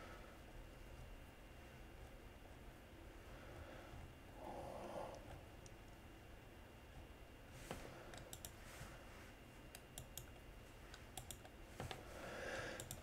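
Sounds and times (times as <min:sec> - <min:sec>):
computer keys clicking: 0:08.1 - 0:08.6, 0:09.7 - 0:12.0, 0:12.7 - 0:13.0.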